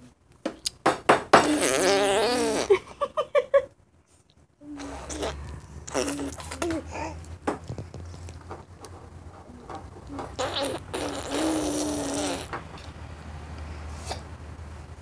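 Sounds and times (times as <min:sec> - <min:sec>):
baby buzzing hum: 0:01.3 - 0:02.8, 0:04.6 - 0:07.2, 0:09.6 - 0:12.6.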